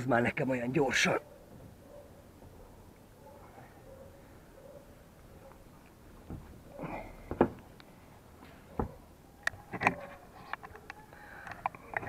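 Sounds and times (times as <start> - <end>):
knocks and scuffs on roof tiles: 6.2 - 7.7.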